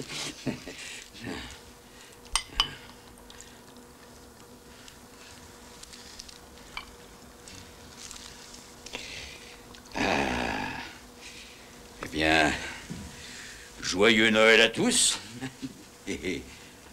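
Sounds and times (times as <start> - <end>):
faint steady hum: 0.0 - 16.9
drinkware clinking: 2.4 - 2.8.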